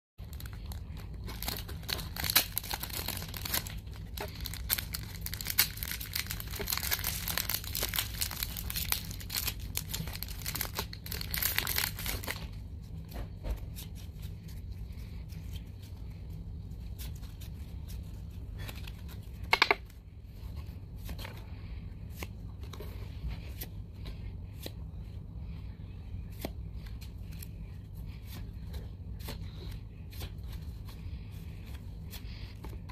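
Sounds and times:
foil pack crinkling and tearing: 0:00.2 - 0:12.6
steady low hum: 0:00.2 - 0:32.9.

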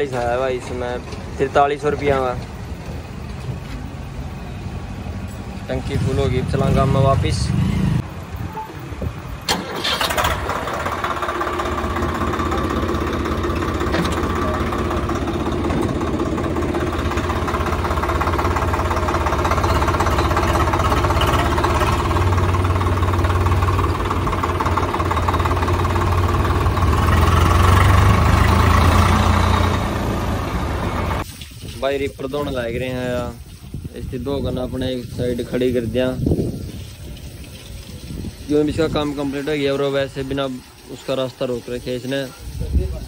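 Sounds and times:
tractor diesel engine: 0:00.0 - 0:31.3.

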